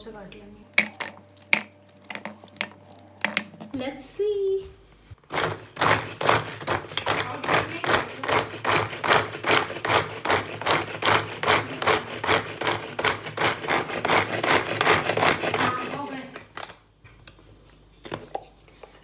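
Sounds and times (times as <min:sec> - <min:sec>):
vegetable chopper rasping: 0:05.2 - 0:16.5.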